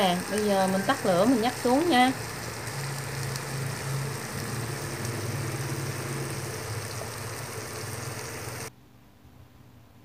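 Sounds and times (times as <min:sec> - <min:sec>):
food sizzling in a pan: 0:00.0 - 0:08.7
low hum: 0:01.6 - 0:08.8.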